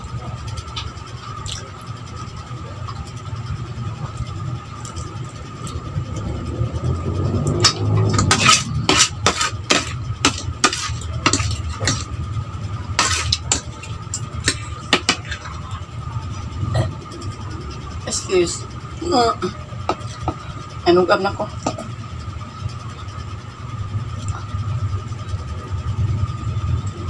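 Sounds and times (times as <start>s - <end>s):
faint steady hum: 0.0s - 27.0s
cutlery scraping and clinking plate: 7.6s - 12.1s, 13.0s - 15.5s.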